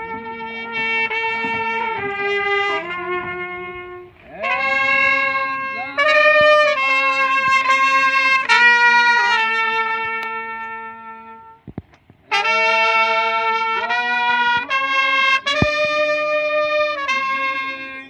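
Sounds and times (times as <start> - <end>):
solo trumpet playing slow melody: 0.0 - 11.7, 12.3 - 18.0.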